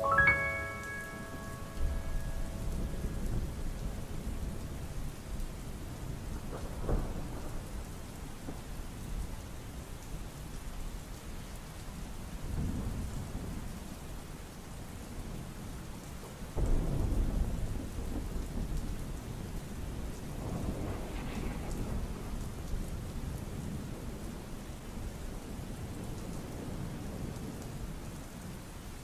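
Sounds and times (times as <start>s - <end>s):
steady rain falling: 0.0s - 29.0s
thunder rolling: 1.8s - 7.8s, 19.9s - 24.0s
sharp thunder crack: 20.3s - 22.8s.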